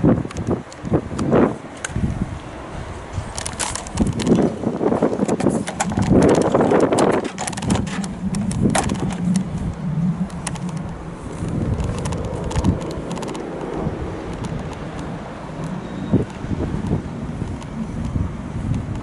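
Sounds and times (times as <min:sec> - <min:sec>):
door handle clicks and rattles: 0:05.2 - 0:09.2.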